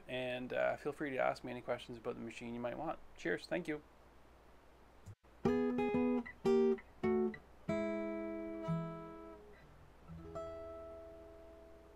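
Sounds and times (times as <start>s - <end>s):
acoustic guitar strumming: 5.4s - 11.9s.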